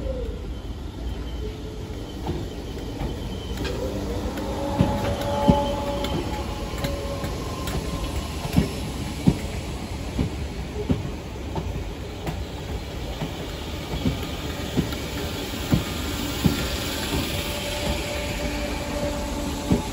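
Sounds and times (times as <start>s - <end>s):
train rumbling past: 0.0s - 19.9s
wheel squeal: 0.5s - 9.0s.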